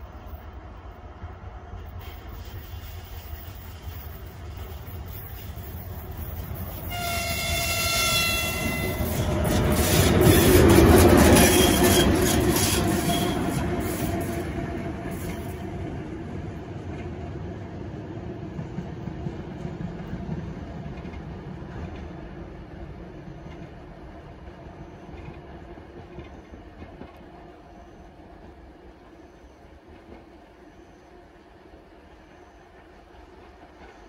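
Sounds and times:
train wheels clacking over rails: 1.7 - 15.7, 18.2 - 31.0, 32.0 - 34.0
locomotive horn: 6.9 - 9.4.

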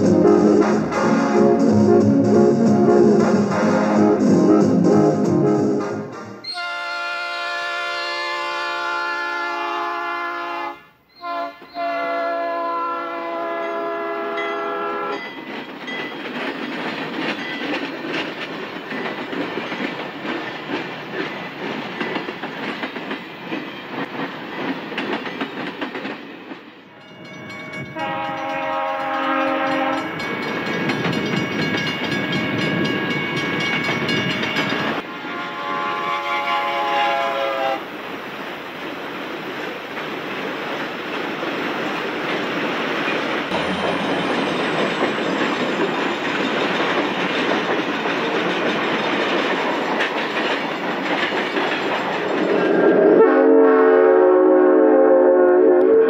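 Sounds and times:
train rumble with wheel clatter: 0.0 - 10.2, 11.6 - 53.3
train horn blasts: 0.0 - 15.3, 27.8 - 30.2, 35.0 - 37.9, 52.7 - 56.0.

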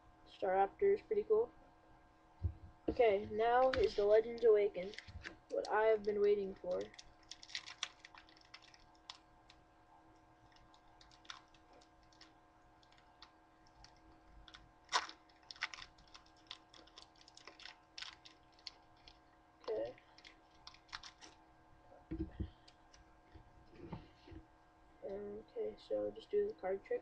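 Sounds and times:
foil wrapper crinkling and tearing: 3.6 - 9.6, 10.5 - 21.4.

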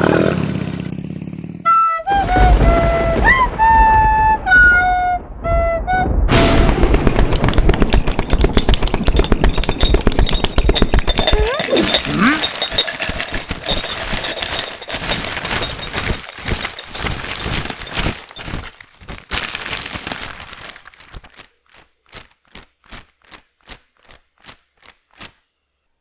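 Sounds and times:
paper letters rustling: 7.1 - 25.4.

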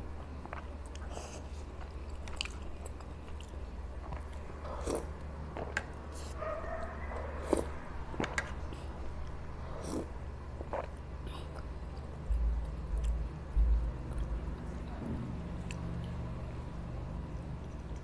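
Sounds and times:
dull low thumps: 12.3 - 14.4.

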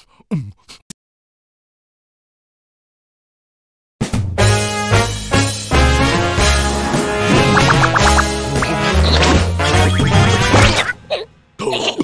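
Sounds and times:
cartoon background music: 4.0 - 12.0.

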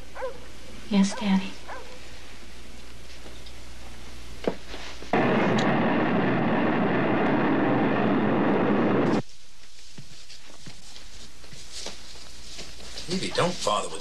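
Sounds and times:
rocket motor roar: 5.1 - 9.2.

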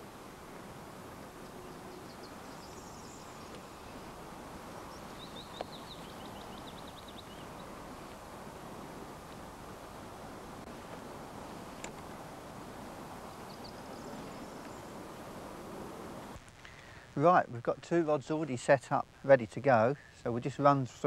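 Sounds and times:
faint background hiss: 0.0 - 21.0
small bird singing: 1.4 - 8.2, 13.2 - 15.3.

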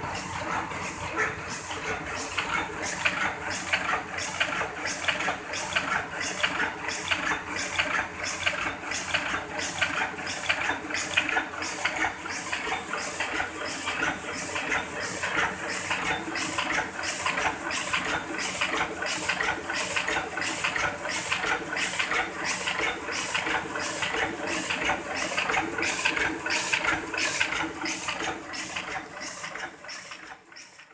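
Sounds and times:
printing press rhythmic clatter: 0.0 - 30.9.

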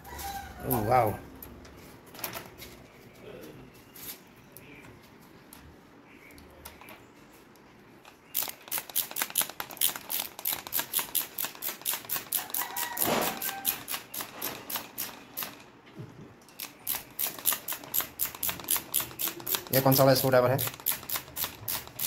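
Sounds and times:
screwdriver ratchet clicking: 8.3 - 15.6, 16.6 - 22.0.

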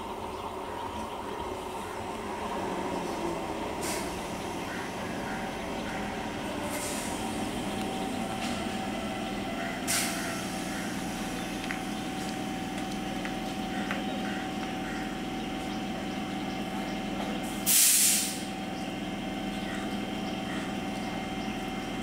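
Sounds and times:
electric train humming and whining: 0.0 - 22.0
sharp hiss of compressed air: 9.9 - 10.2, 17.6 - 18.5.

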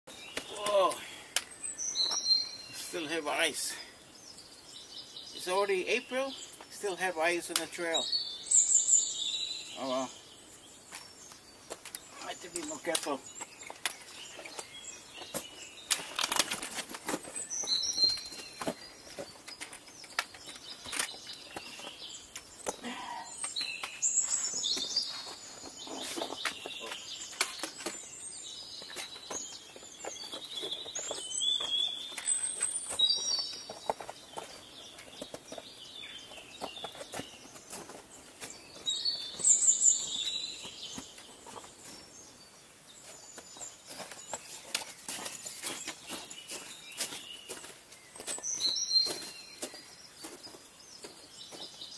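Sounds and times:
birds chirping: 0.1 - 51.9
footsteps on rock and ice: 10.9 - 22.8, 23.5 - 42.1, 43.0 - 51.9
trekking poles tapping rock: 11.7 - 25.1, 25.7 - 28.0.

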